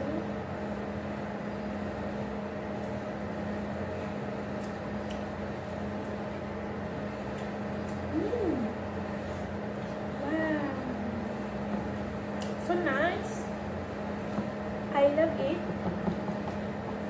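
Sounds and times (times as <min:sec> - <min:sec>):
appliance hum: 0:00.0 - 0:17.0
person humming: 0:08.1 - 0:08.8.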